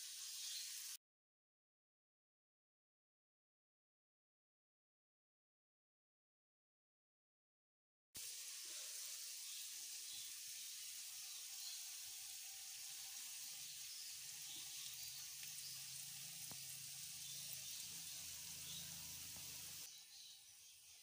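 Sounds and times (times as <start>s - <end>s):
batter sizzling in oil: 0.0s - 1.0s, 8.2s - 21.0s.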